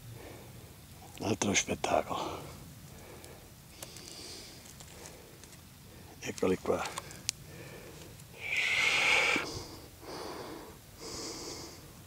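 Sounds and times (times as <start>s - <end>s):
man breathing heavily: 0.0s - 0.8s, 2.1s - 6.2s, 6.9s - 12.0s.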